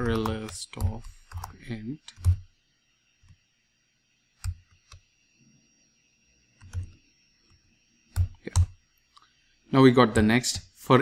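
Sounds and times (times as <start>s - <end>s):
computer keyboard keystrokes: 0.0s - 2.5s, 6.6s - 7.0s.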